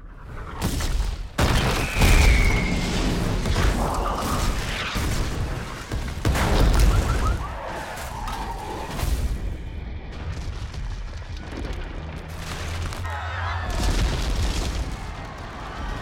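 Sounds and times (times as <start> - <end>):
heavy booms and explosions: 0.3 - 16.0
debris crashing down: 0.7 - 16.0
high falling whistle: 1.8 - 3.2, 6.7 - 8.6.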